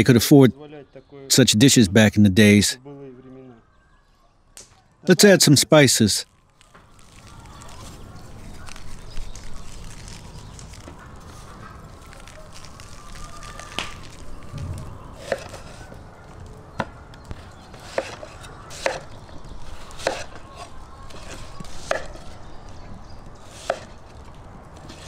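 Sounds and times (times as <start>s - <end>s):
knife striking wooden board: 17.8s - 19.1s, 20.0s - 20.4s, 21.1s - 22.2s.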